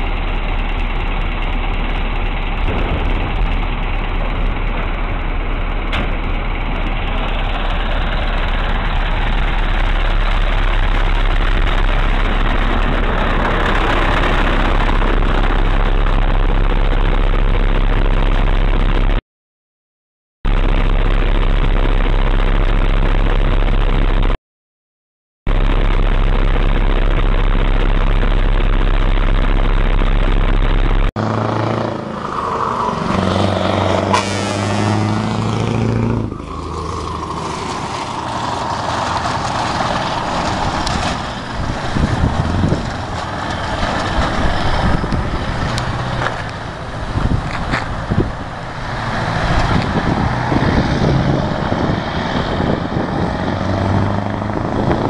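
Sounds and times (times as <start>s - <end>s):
truck diesel engine pulling away: 0.0s - 18.7s, 31.2s - 55.0s
road noise: 0.0s - 19.2s, 25.5s - 55.0s.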